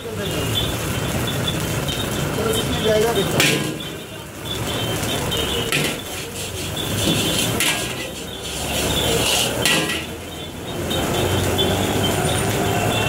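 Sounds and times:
metal ladle scraping a wok: 5.7 - 10.2.

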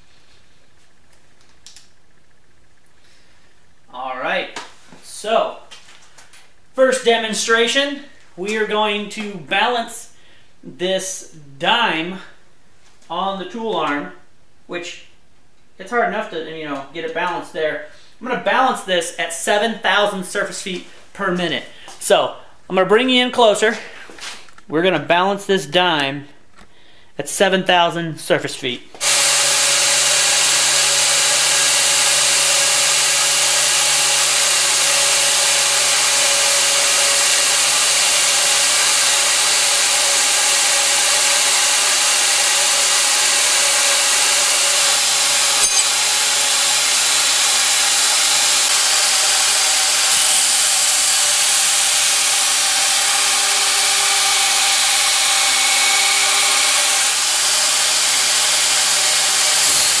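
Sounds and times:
belt grinder running: 29.0 - 60.0.

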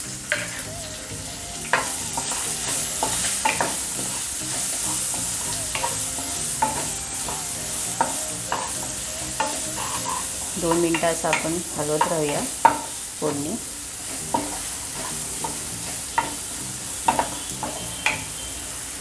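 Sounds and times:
onion sizzling in oil: 0.0 - 19.0
spoon knocking and scraping pan: 8.0 - 8.8, 9.4 - 13.0, 14.2 - 16.5, 17.1 - 18.2.

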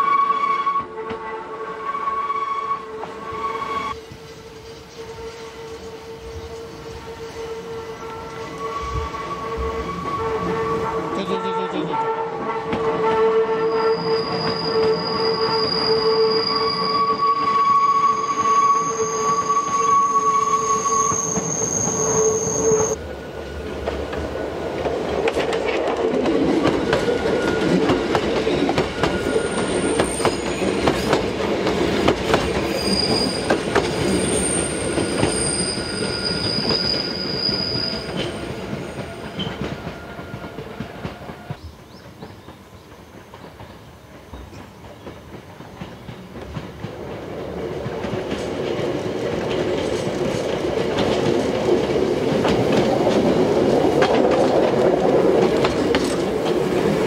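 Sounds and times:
wheels rumbling on rail: 0.0 - 57.0
train wheels squealing: 1.8 - 11.3, 13.5 - 23.7, 26.6 - 31.2, 32.3 - 42.5.

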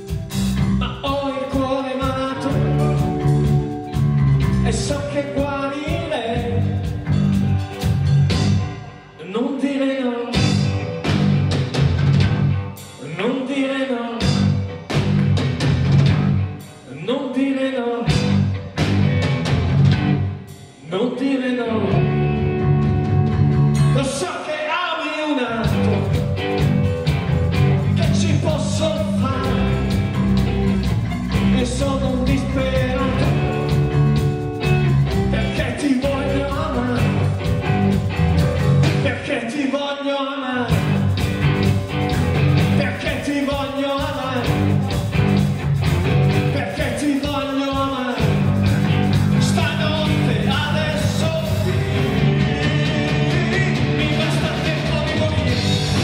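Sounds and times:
drum kit: 0.0 - 9.2, 10.3 - 13.3, 14.2 - 16.9, 18.1 - 21.0, 21.9 - 24.5, 25.6 - 39.5, 40.7 - 56.0
bass guitar: 0.0 - 24.5, 25.4 - 39.8, 40.6 - 56.0
electric guitars: 0.0 - 24.7, 25.4 - 39.6, 40.6 - 56.0
man singing: 0.6 - 3.7, 4.5 - 7.0, 9.2 - 10.9, 12.9 - 14.6, 16.7 - 18.5, 20.8 - 22.9, 23.8 - 26.7, 27.8 - 30.4, 31.3 - 34.2, 35.1 - 37.8, 38.4 - 41.1, 42.0 - 45.2, 46.4 - 48.6, 49.4 - 56.0.

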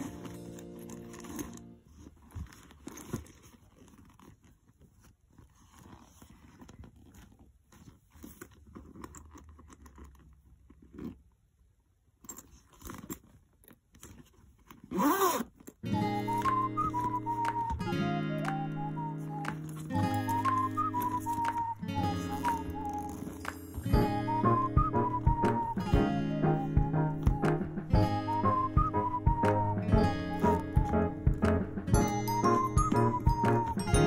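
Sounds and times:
guitar music: 0.0 - 1.8, 15.9 - 34.0
bag rustling and clicks: 0.0 - 27.4
zip fastener pulled shut: 14.1 - 15.8.

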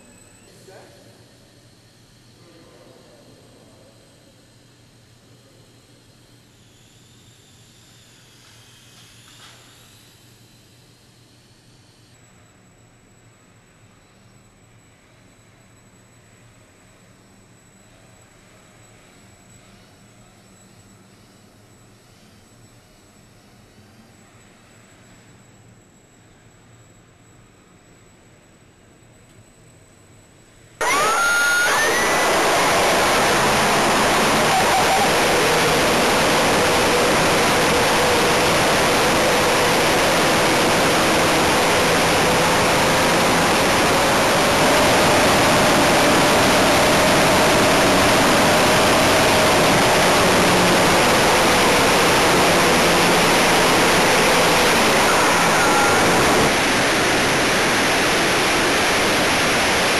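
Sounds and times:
propeller and motor hum: 30.8 - 59.9
rushing wind: 31.7 - 59.9.

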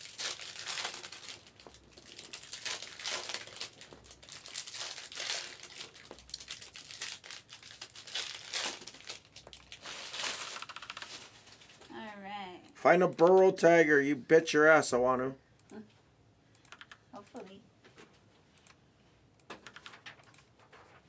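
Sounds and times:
foil wrappers crinkling and tearing: 0.0 - 11.8
cards rustling: 0.0 - 11.9.

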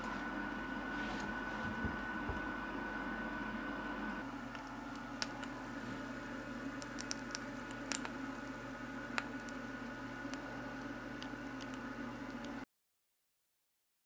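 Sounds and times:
steady low hum: 0.0 - 12.6
plastic crackling and popping: 4.4 - 8.5, 9.1 - 12.6.

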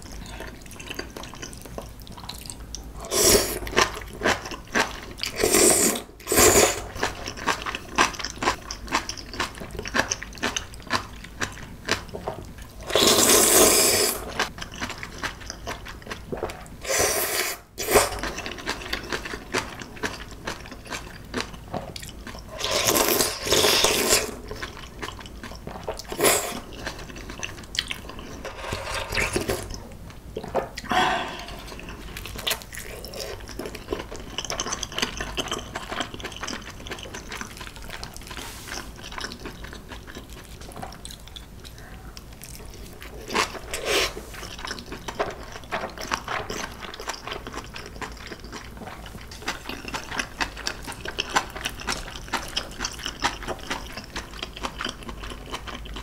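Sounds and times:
wet chewing and mouth clicks: 6.9 - 13.1, 18.1 - 29.8, 31.6 - 56.0
noodle slurping: 12.8 - 14.4.

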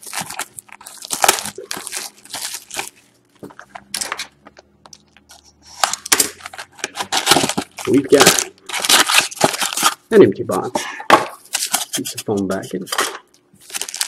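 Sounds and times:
plastic wrap crinkling and tearing: 0.0 - 4.3, 4.9 - 10.2, 13.6 - 14.0.

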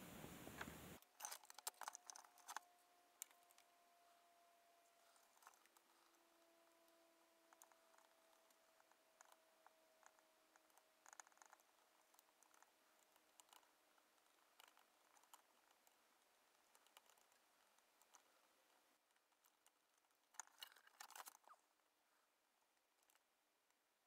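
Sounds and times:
faint clicks: 0.2 - 3.8, 4.8 - 21.7
clicks and scrapes on circuit board: 1.0 - 3.7, 7.4 - 21.6.

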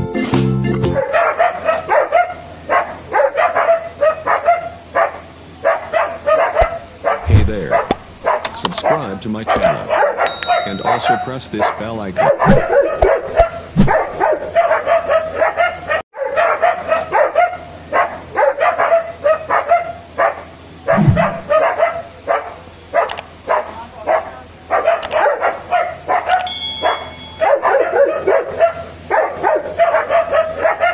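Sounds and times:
dog barking: 1.0 - 30.9
high steady tone: 10.3 - 11.7, 26.4 - 27.6.

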